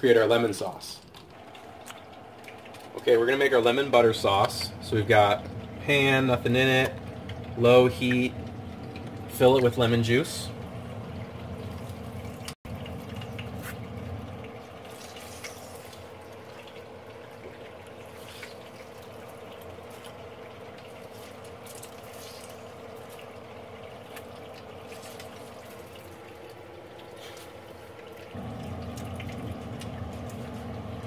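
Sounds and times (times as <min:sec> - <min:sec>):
juice dripping into pan: 0:00.1 - 0:31.0
steady low hum: 0:28.0 - 0:31.0.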